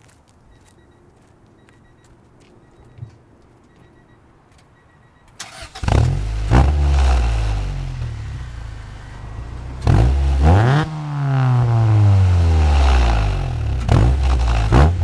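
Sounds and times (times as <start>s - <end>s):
car engine revving: 5.4s - 15.0s.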